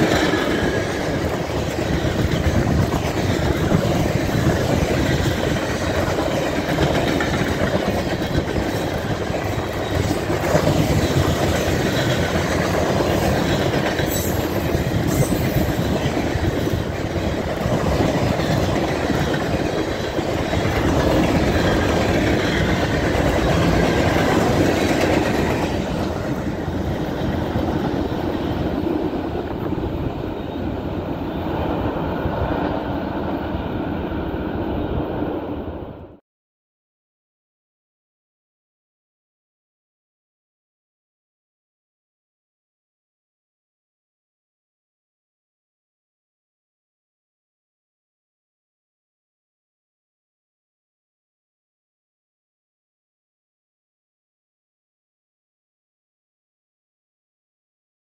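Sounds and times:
freight train cars rolling past: 0.0 - 36.1.

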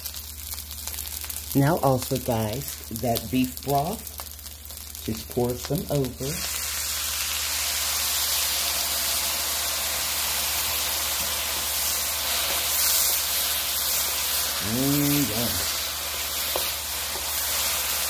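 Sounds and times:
broth sizzling in hot pan: 0.0 - 18.0.

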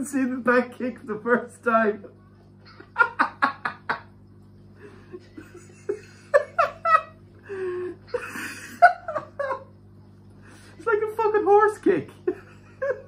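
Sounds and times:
man laughing: 2.7 - 4.1, 4.8 - 9.7, 12.2 - 13.0.

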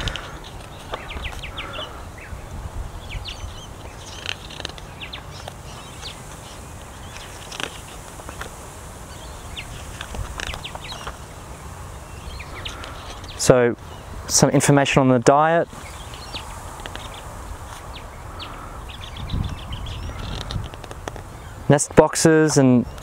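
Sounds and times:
bird chirps and calls: 0.0 - 8.4, 9.1 - 14.6, 15.7 - 21.8
book pages turning: 4.1 - 6.5.

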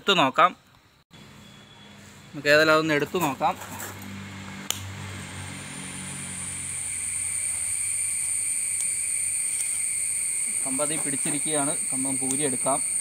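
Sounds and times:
low engine hum: 4.0 - 7.6
high-pitched insect drone: 5.3 - 13.0.

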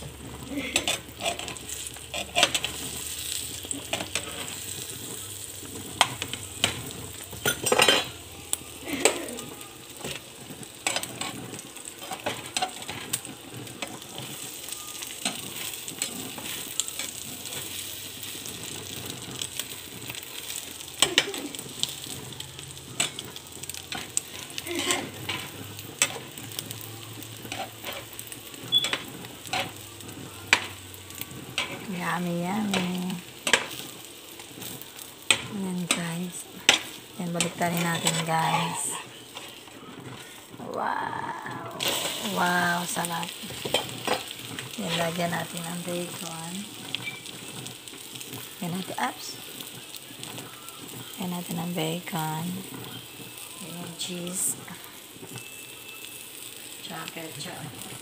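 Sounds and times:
food sizzling in butter: 0.0 - 58.0
spatula scraping and tapping pan: 0.6 - 4.7, 5.9 - 8.2, 10.8 - 17.8, 27.4 - 31.9, 32.6 - 33.8, 34.4 - 40.5, 43.5 - 48.4.

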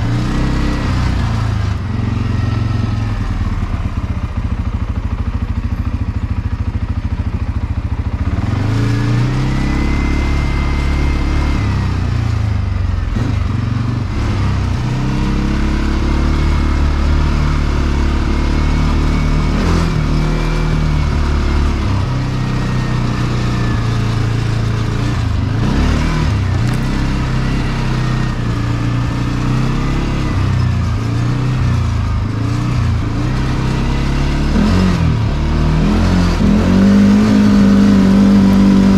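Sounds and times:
atv engine revving: 0.0 - 38.9.

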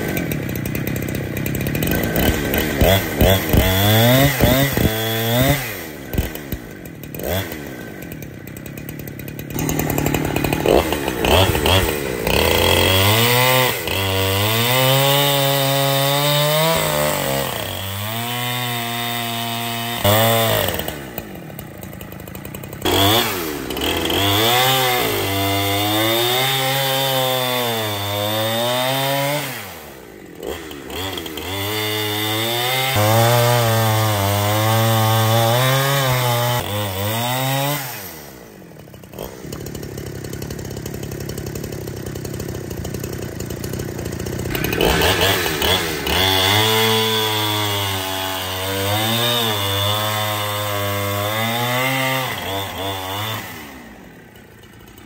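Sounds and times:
chainsaw revving: 0.0 - 55.0.

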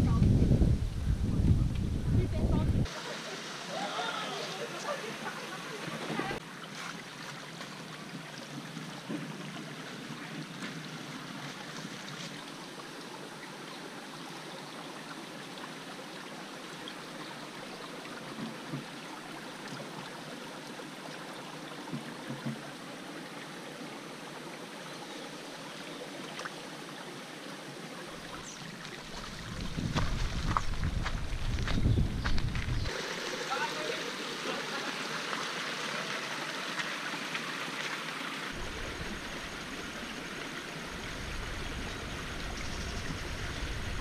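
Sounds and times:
stream rushing over gravel: 2.8 - 14.2, 26.1 - 44.0.

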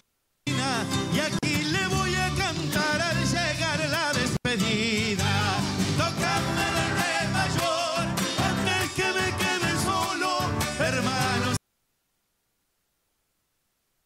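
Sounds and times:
guitar: 0.4 - 11.6
man singing with vibrato: 0.4 - 11.6
drums: 0.5 - 11.6
electric bass: 0.9 - 11.6
backing vocal: 4.6 - 11.6.

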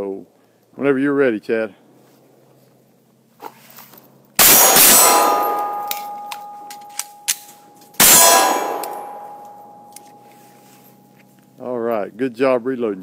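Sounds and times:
pistol shots: 4.4 - 9.9
steel target ringing: 4.4 - 11.2
pistol reloading clicks: 5.8 - 8.0.

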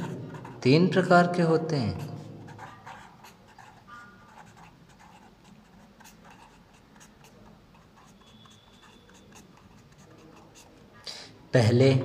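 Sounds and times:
pen scratching on paper: 0.0 - 0.8, 2.0 - 10.9.

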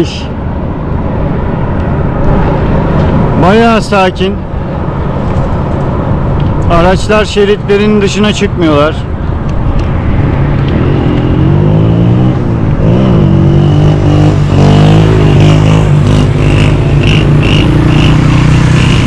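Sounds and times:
traffic passing close by: 0.0 - 19.0
truck engine drone: 9.1 - 19.0.

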